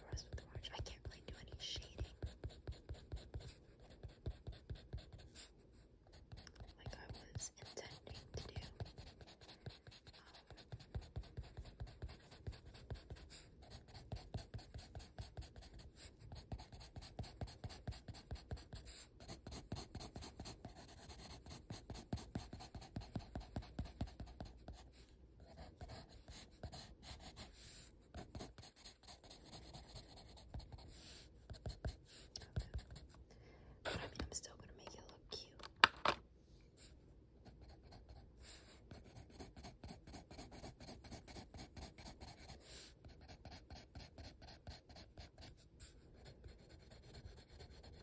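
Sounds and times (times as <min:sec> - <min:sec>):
pencil shading on paper: 0:00.0 - 0:33.1, 0:36.8 - 0:48.0.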